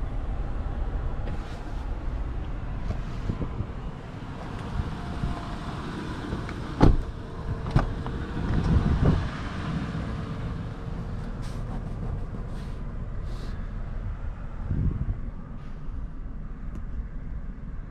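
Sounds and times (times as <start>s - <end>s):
outdoor background noise: 0.0s - 17.9s
car door shutting: 6.2s - 9.2s.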